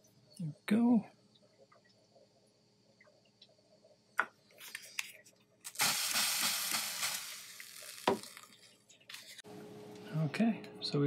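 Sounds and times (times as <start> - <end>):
hot metal sizzling with steam hiss: 5.7 - 8.6.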